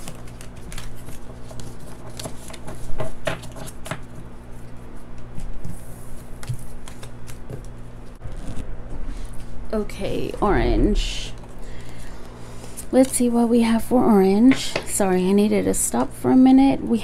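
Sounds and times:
cards being shuffled: 0:00.0 - 0:09.5.

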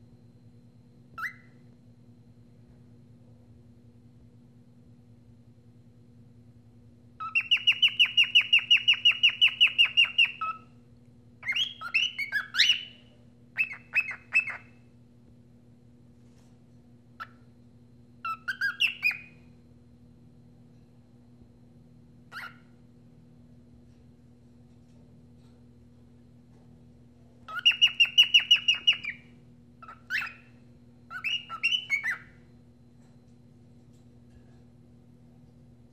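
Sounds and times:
cockatiel chirping and whistling: 0:01.2 - 0:01.6, 0:07.2 - 0:10.7, 0:11.4 - 0:14.8, 0:17.2 - 0:17.4, 0:18.2 - 0:19.4, 0:22.3 - 0:22.7, 0:27.5 - 0:32.4.

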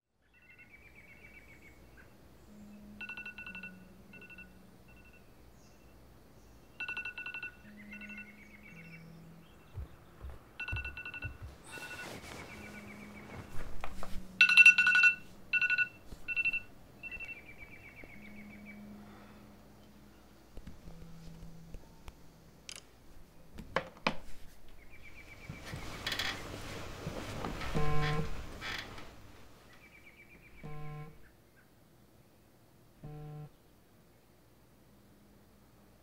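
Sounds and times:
low held electronic tones: 0:00.5 - 0:06.0, 0:06.6 - 0:22.6, 0:27.6 - 0:28.4, 0:30.6 - 0:31.2, 0:33.0 - 0:33.6
electronic ringtone beeps: 0:02.5 - 0:05.3, 0:06.8 - 0:09.2, 0:10.6 - 0:13.0, 0:14.4 - 0:19.0.

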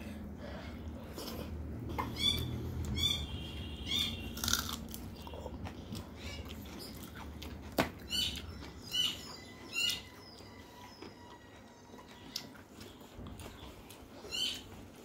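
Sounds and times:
animal chirping: 0:02.0 - 0:04.6
person chewing: 0:04.3 - 0:08.8.

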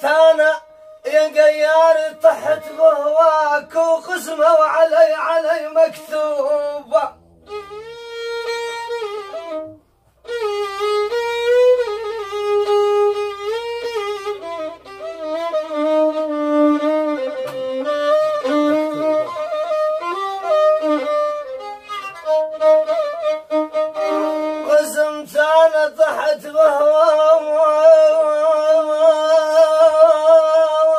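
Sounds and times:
solo violin playing: 0:00.0 - 0:04.0, 0:07.3 - 0:25.9.

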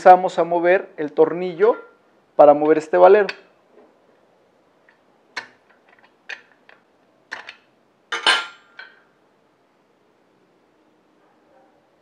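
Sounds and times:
metallic clinks and taps: 0:07.4 - 0:09.0.

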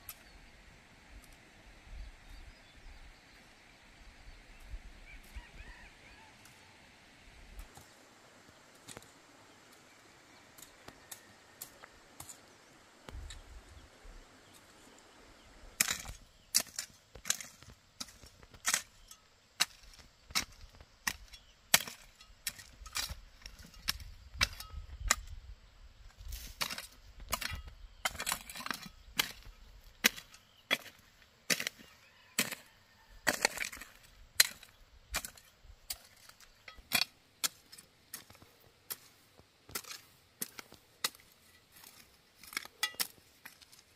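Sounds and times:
hoe striking stony soil: 0:07.5 - 0:13.5, 0:15.8 - 0:25.4, 0:26.0 - 0:43.9.

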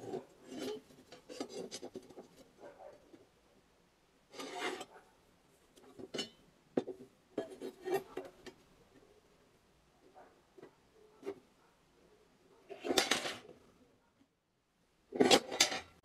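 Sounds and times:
steel panels scraping: 0:00.0 - 0:03.2, 0:04.3 - 0:05.0, 0:05.9 - 0:06.4, 0:07.4 - 0:08.6, 0:12.7 - 0:13.6, 0:15.1 - 0:16.0.

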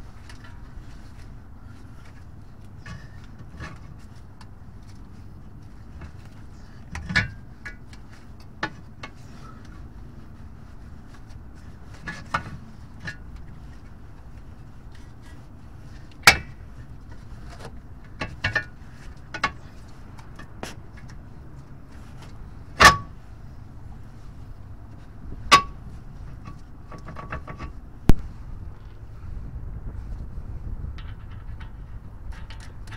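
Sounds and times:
steady low rumble: 0:00.0 - 0:32.9
metal clinks and knocks: 0:30.8 - 0:32.9.

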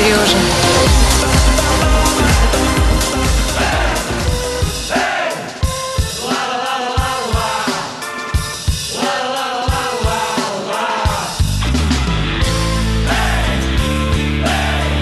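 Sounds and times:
heavy dance bass: 0:00.0 - 0:05.0
pop music with drum beat: 0:00.0 - 0:15.0.

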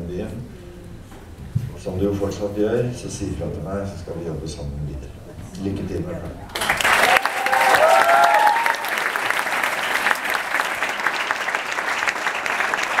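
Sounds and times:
audience applauding: 0:06.5 - 0:13.0
short cheers: 0:07.0 - 0:09.1.

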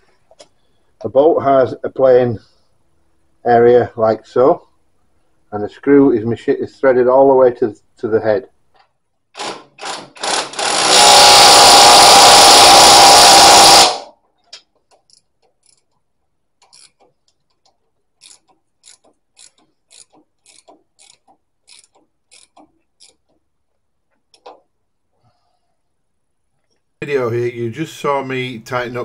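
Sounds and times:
short bursts of noise: 0:09.3 - 0:14.2
loud steady noise: 0:10.2 - 0:14.1
ratchet wrench clicking: 0:14.9 - 0:16.0, 0:16.6 - 0:17.1, 0:18.2 - 0:23.4.

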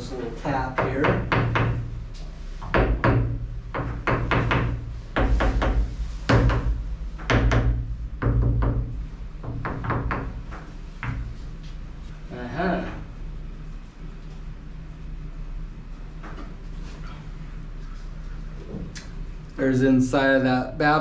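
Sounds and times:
hammer knocking on metal: 0:00.7 - 0:01.9, 0:02.6 - 0:11.3.

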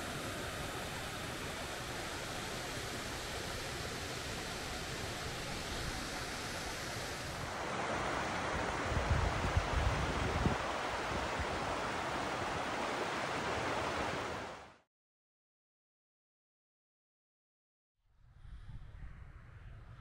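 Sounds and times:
water rushing over rocks: 0:00.0 - 0:14.6
fast-flowing river rushing: 0:00.0 - 0:14.7
wind gusts on microphone: 0:05.2 - 0:14.6, 0:18.2 - 0:20.0.

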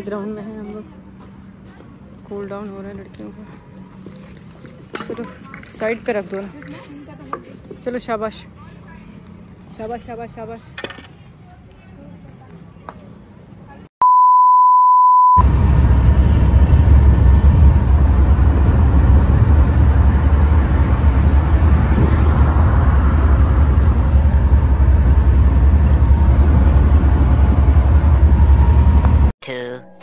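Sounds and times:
bus engine and road rumble: 0:00.0 - 0:13.9, 0:15.4 - 0:29.3
electronic beep: 0:14.0 - 0:15.4.

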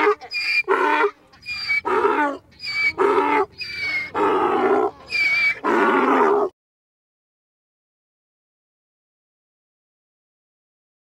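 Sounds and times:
donkey braying: 0:00.0 - 0:06.5.

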